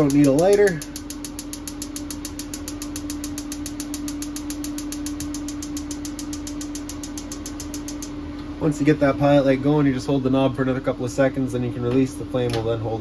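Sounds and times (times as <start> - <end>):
spark igniter clicking rapidly: 0.0 - 8.1
steady hum: 0.0 - 13.0.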